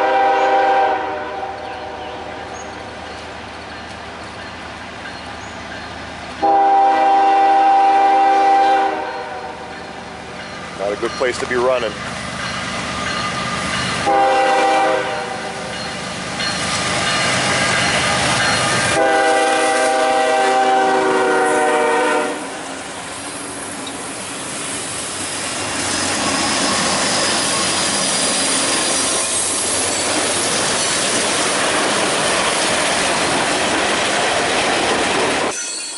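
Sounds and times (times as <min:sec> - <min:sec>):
train horn blasts: 0:00.0 - 0:02.1, 0:06.4 - 0:09.8, 0:14.0 - 0:15.7, 0:18.9 - 0:22.6
train wheels clacking on rails: 0:02.5 - 0:06.4, 0:08.6 - 0:20.8, 0:23.1 - 0:35.9.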